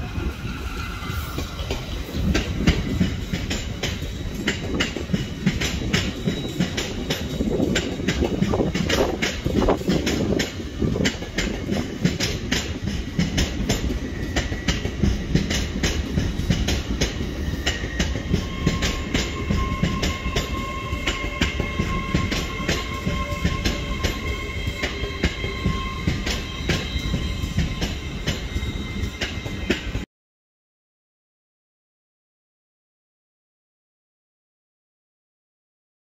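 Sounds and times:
high wheel squeal: 0.1 - 2.1, 5.8 - 8.0, 17.2 - 30.0
train wheels clicking over rail joints: 0.3 - 30.0.

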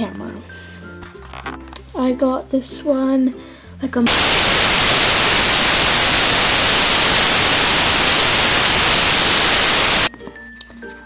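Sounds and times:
loud white-noise static: 4.1 - 10.1.

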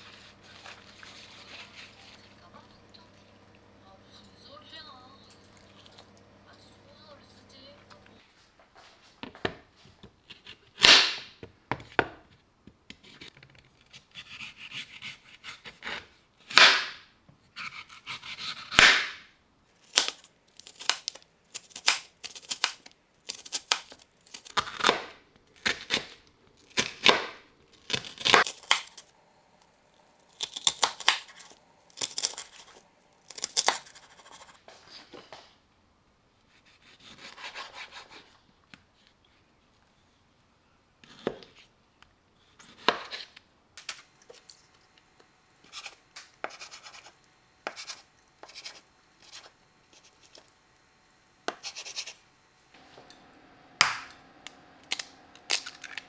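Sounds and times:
knife crunching through carrot: 30.2 - 34.6.

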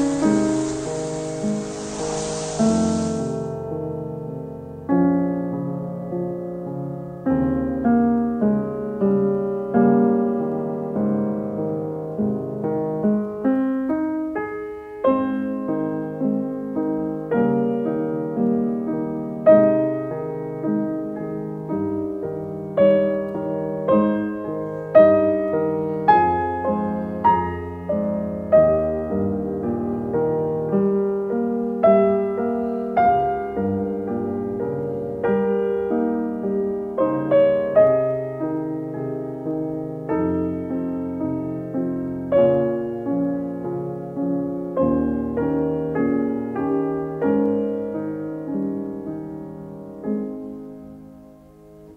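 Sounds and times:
piano music: 0.0 - 3.5.

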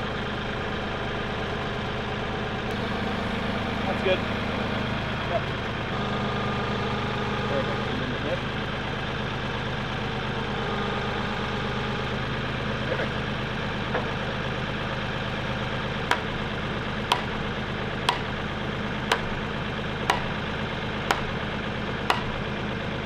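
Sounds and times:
tractor engine idling: 0.0 - 23.0
post driver striking fence post: 16.1 - 16.4, 17.0 - 19.4, 20.0 - 22.4.

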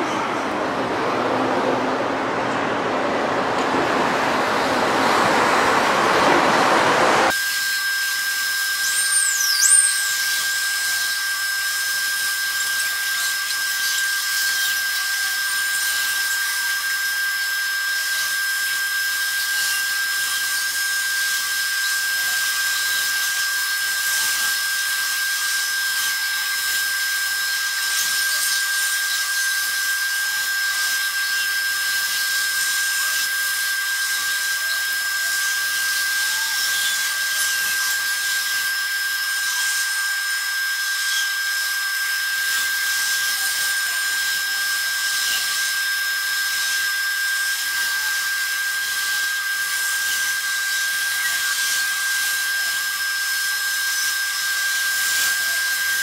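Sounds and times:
rumbling noise: 0.0 - 7.3
high-pitched whine: 0.0 - 56.0.

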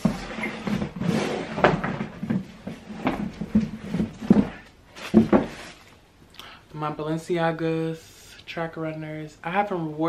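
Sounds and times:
rustling and scraping: 0.0 - 6.0.

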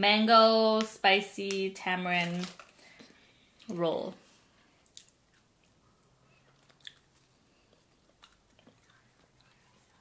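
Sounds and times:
faint chewing with mouth clicks: 4.7 - 10.0.

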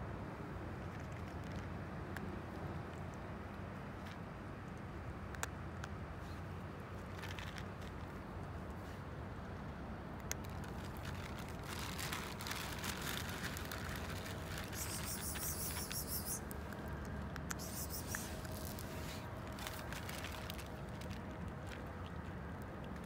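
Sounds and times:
low background hum: 0.0 - 23.0
cat crunching dry kibble: 0.8 - 9.0, 10.0 - 23.0.

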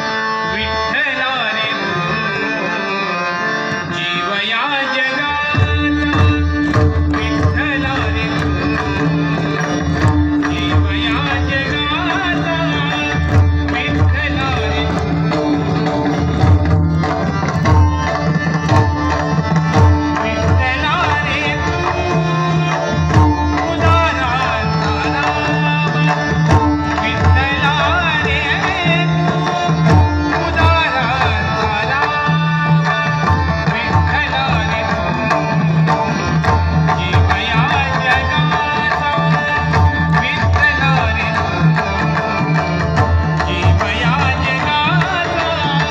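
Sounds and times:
harmonium: 0.0 - 45.9
man singing devotional song: 0.0 - 45.9.

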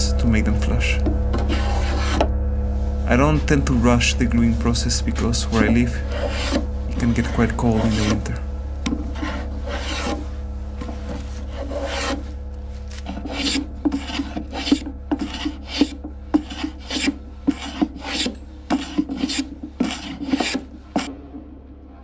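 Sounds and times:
hand plane shaving wood: 1.4 - 2.2, 4.9 - 8.4, 9.0 - 12.3, 12.9 - 21.1.

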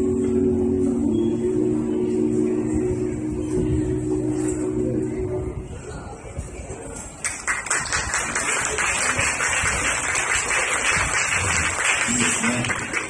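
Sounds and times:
a cappella group singing chord: 0.0 - 5.7
audience applause: 7.2 - 13.0.

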